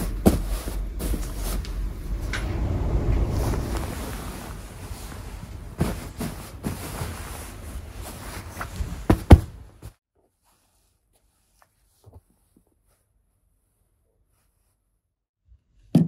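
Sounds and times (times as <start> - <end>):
fabric rustling: 0.0 - 15.1
low rumble: 0.7 - 6.6
soft thumps on pillow: 8.6 - 10.0.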